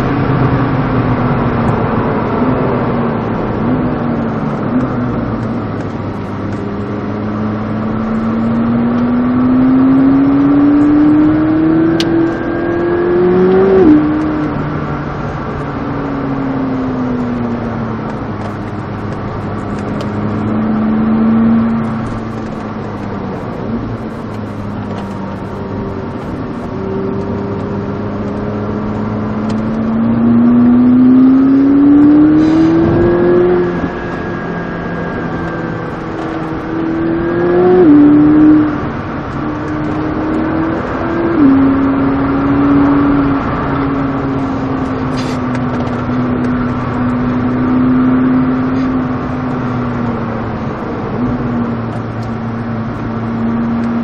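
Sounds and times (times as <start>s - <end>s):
sports car engine revving: 0.0s - 54.0s.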